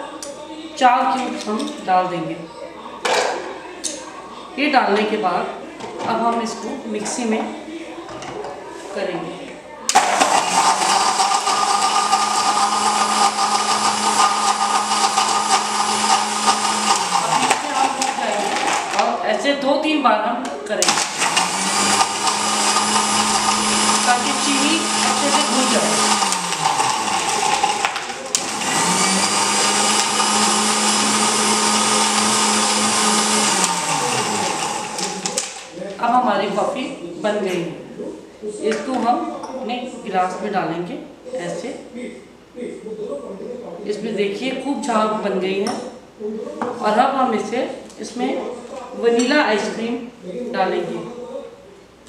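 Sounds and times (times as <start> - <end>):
blender motor running: 9.9 - 19.0, 20.8 - 35.4.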